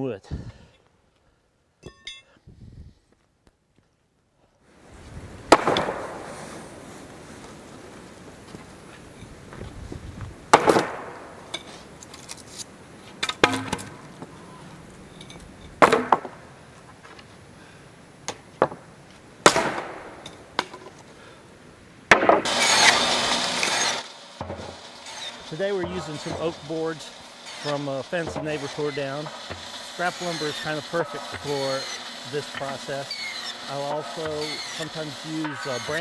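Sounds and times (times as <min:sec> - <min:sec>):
wooden boards knocking: 0:13.3 - 0:14.1, 0:15.8 - 0:16.4, 0:22.1 - 0:22.5
bandsaw cutting board: 0:13.4 - 0:14.0, 0:22.1 - 0:36.0.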